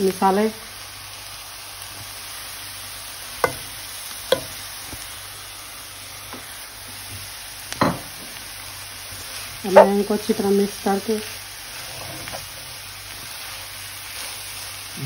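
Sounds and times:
food sizzling in a frying pan: 0.0 - 15.0
knock on pan: 3.4 - 3.7, 4.3 - 4.6, 7.8 - 8.3
light taps on pan: 3.4 - 3.7, 4.3 - 5.0.

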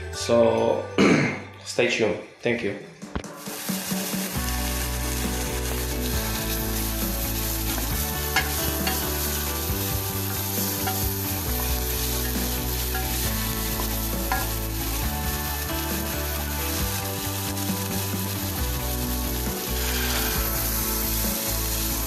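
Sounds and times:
onion sizzling in a saucepan: 3.4 - 22.0.

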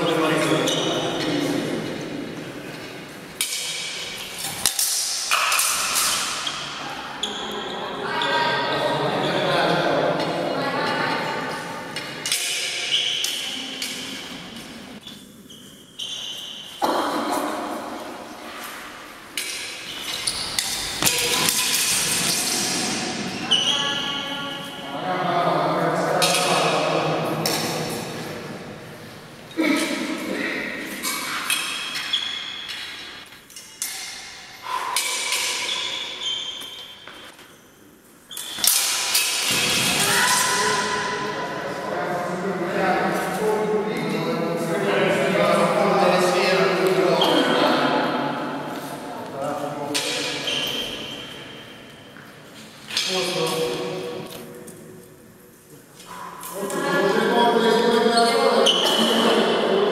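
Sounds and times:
sharp knocks in echoing hall: 3.4 - 6.9, 11.9 - 14.8, 16.6 - 24.7, 25.9 - 28.5, 29.6 - 37.4, 38.5 - 42.1
steel swords clashing: 31.0 - 37.0.

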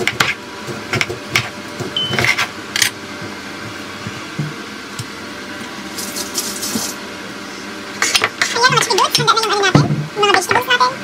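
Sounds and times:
knife chopping on cutting board: 0.0 - 2.5.

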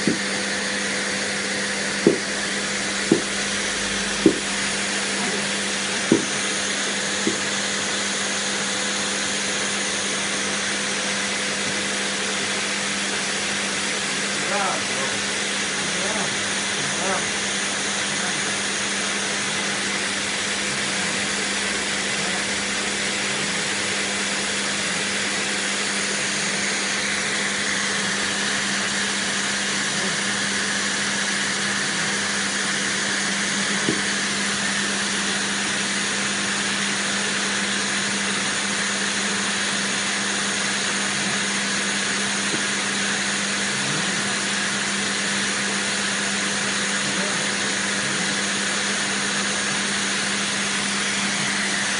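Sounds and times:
vacuum cleaner running: 0.0 - 51.9.

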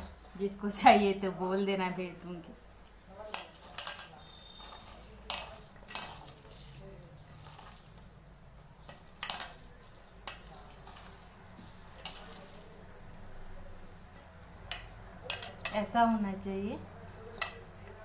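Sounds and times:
metal bowl clinking and ringing: 2.8 - 6.7.

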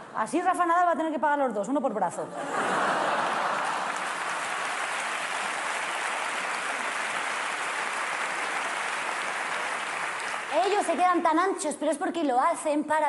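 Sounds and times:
audience applauding: 2.9 - 11.3.

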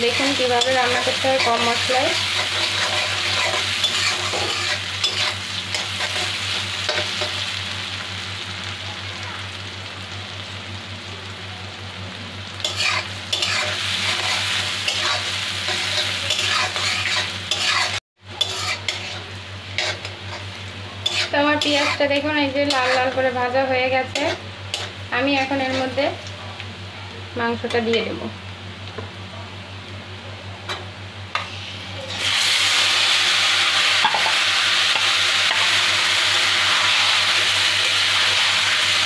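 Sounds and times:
onions sizzling in hot oil: 0.0 - 29.0, 29.7 - 39.0
spatula scraping a metal pan: 0.6 - 6.3, 12.7 - 23.2, 24.1 - 26.0.

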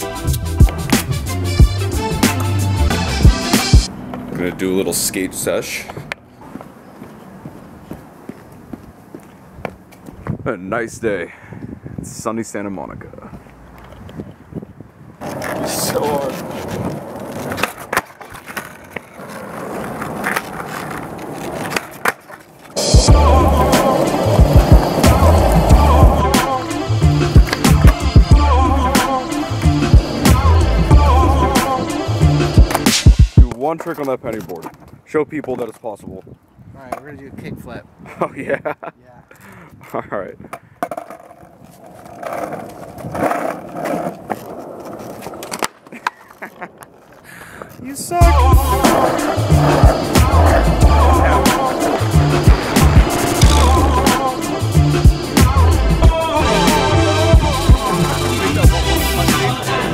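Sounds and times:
skateboard wheels rolling on asphalt: 0.0 - 38.2, 39.4 - 59.9
skateboard clacking on pavement: 15.2 - 22.8, 23.6 - 26.6, 33.5 - 35.9, 40.5 - 48.0, 48.7 - 54.4
loud rush of noise: 22.8 - 27.8, 48.5 - 59.9.

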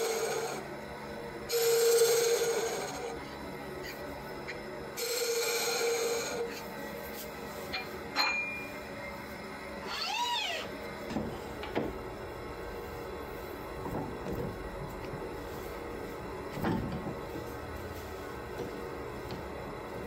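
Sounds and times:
wood lathe turning: 0.0 - 0.7, 1.5 - 3.2, 5.0 - 6.7
squeal-like call: 9.8 - 10.7.

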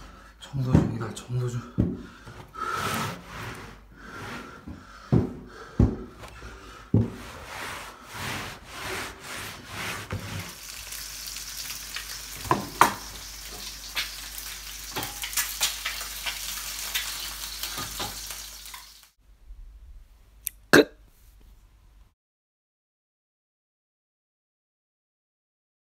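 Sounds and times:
spatula scraping a pan: 2.6 - 4.6, 7.0 - 11.7
eggs sizzling in a pan: 10.3 - 19.2.

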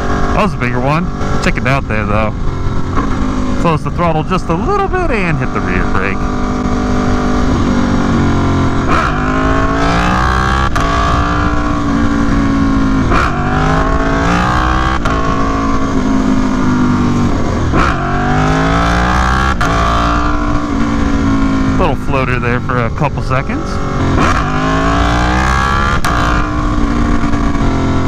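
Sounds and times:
motorcycle engine revving hard: 0.0 - 28.0
wind rushing over microphone: 0.0 - 28.0.

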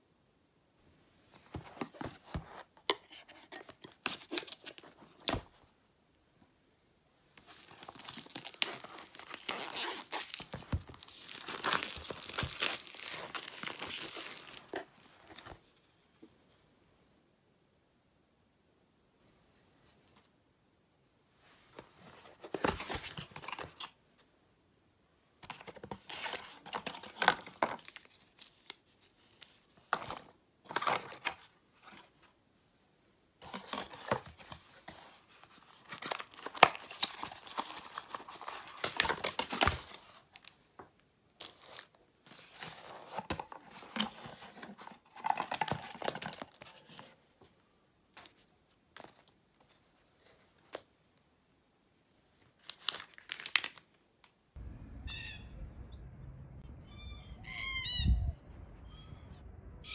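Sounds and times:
plastic wrapping crinkling: 7.4 - 15.0, 52.6 - 53.9.

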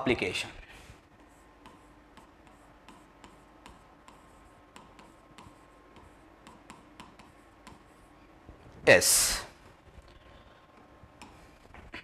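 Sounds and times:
low steady hum: 0.0 - 12.0
stylus tapping on touch screen: 1.6 - 7.9.

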